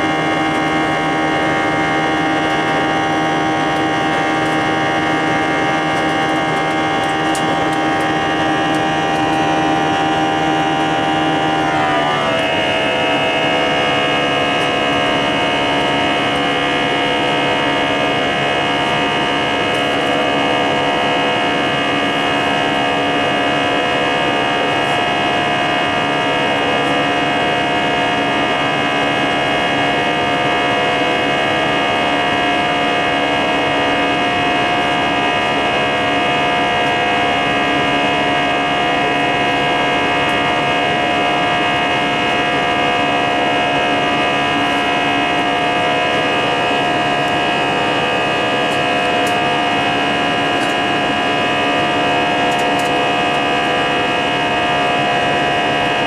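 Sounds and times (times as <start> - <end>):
jet engine drone in cabin: 0.0 - 56.0.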